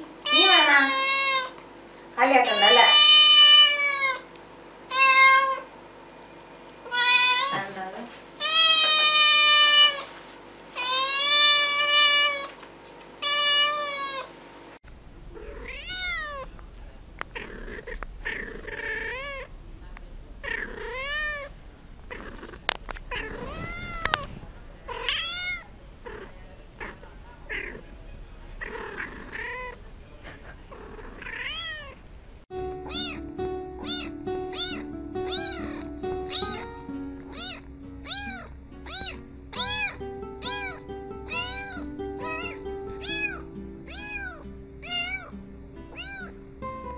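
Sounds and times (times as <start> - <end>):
kitten meowing: 8.4 - 10.0, 13.2 - 14.3, 15.3 - 16.5, 17.2 - 19.5, 20.4 - 27.8, 28.6 - 29.8, 30.7 - 32.0, 32.8 - 45.3, 45.9 - 46.4
cat giving short meows: 15.4 - 16.5, 23.1 - 27.8, 32.9 - 36.7, 46.0 - 46.3.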